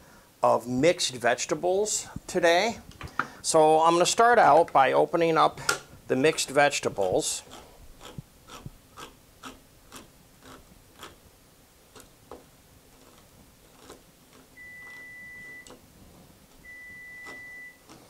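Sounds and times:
oven timer beep: 14.6 - 15.8, 16.6 - 17.9.

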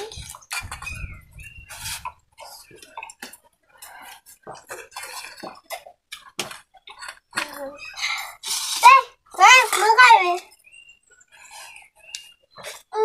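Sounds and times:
eating and drinking noises: 0.0 - 13.0.

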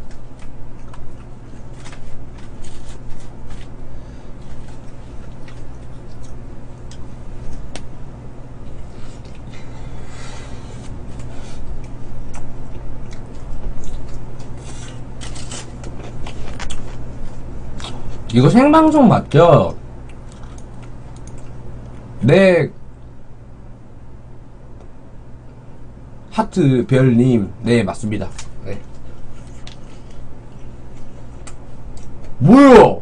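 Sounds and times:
biting and chewing food: 0.0 - 7.9, 10.6 - 18.3, 20.0 - 22.1, 28.3 - 32.4
steady low hum: 0.0 - 33.0.

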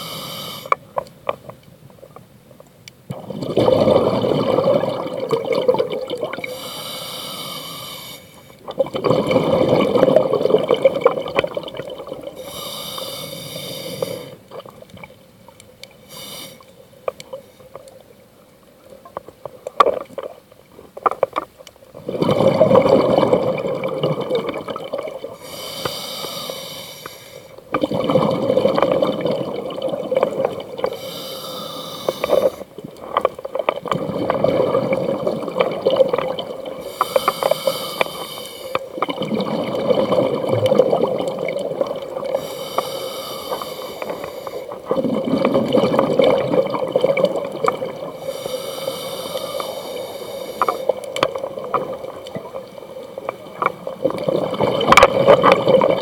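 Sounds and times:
diver breathing through regulator: 0.0 - 0.8, 6.4 - 8.6, 12.4 - 14.4, 16.0 - 16.7, 25.4 - 27.6, 30.8 - 32.7, 36.8 - 38.9, 42.3 - 44.8, 48.2 - 51.0
faint clicks: 0.6 - 3.2, 12.4 - 22.0, 30.8 - 34.0, 36.8 - 39.3, 40.6 - 44.7, 48.4 - 54.3.

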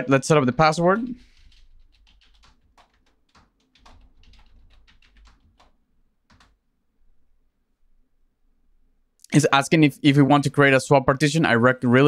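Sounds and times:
keyboard keys clicking: 0.6 - 6.6.

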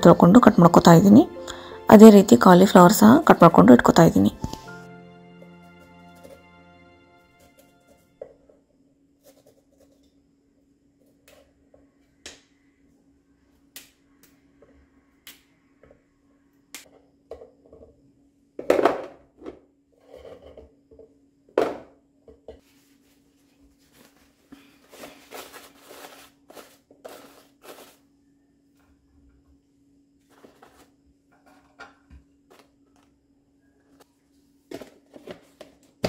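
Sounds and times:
paper towel rustling: 22.6 - 28.0, 30.3 - 30.9.

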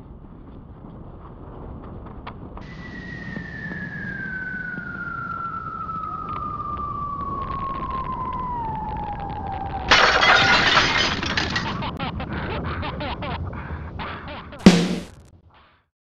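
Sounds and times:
falling cartoon whistle: 2.6 - 9.9
glass shattering crash: 9.9 - 11.9
clattering debris: 9.9 - 12.0.

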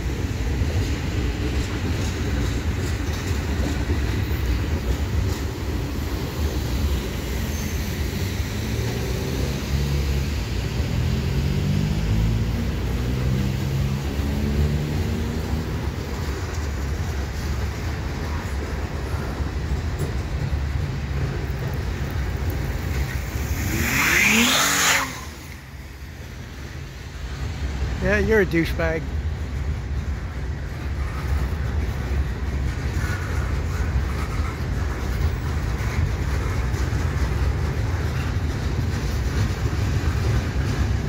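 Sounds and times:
cars driving on wet pavement: 0.0 - 41.0
freight train rumbling over bridge: 0.0 - 41.0
car accelerating loudly: 23.4 - 25.6.

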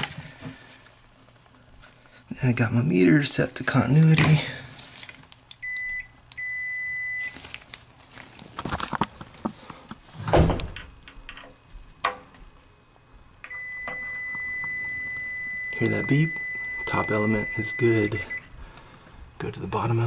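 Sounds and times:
multimeter continuity beep: 5.6 - 7.4, 13.5 - 18.5.

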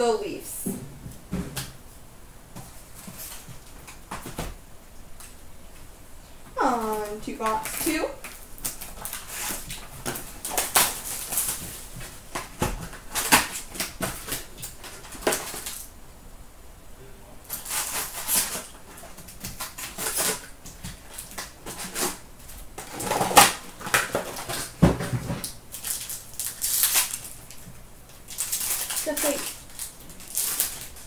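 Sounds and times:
rustling cardboard and card packs: 2.6 - 4.6, 6.5 - 15.9, 17.5 - 31.0
crinkling plastic wrap: 6.6 - 15.9, 17.5 - 31.0.

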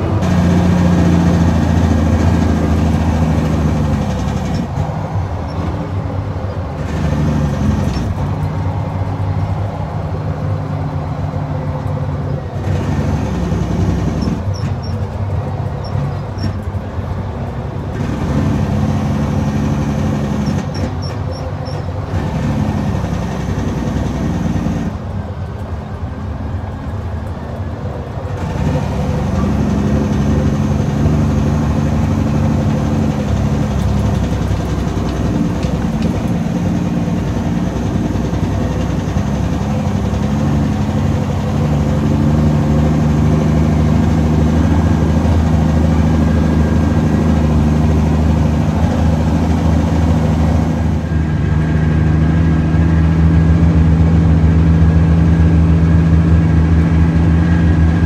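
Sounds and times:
truck diesel engine running: 0.0 - 58.0.

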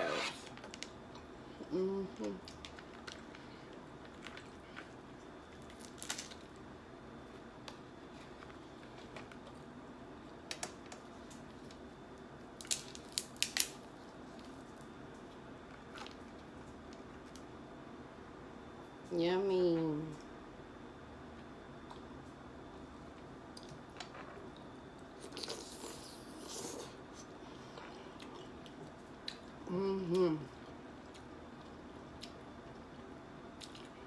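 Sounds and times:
crab shells cracking: 5.6 - 6.6, 12.6 - 13.9.

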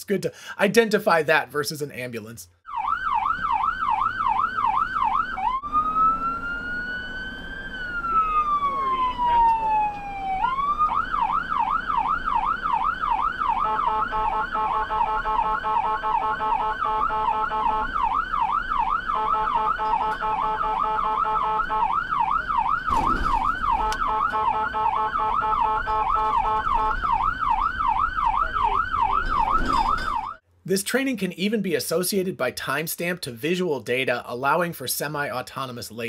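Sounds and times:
siren yelping: 2.6 - 30.4
blaring multi-note horn tone: 13.6 - 18.0, 19.1 - 22.0, 23.7 - 27.1.

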